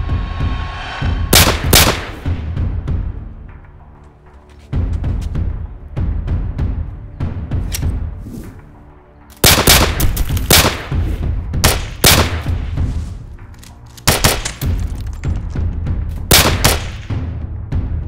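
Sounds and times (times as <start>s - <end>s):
handgun gunshots: 9.4s - 11.0s, 11.6s - 12.5s, 13.9s - 14.9s, 16.3s - 17.1s.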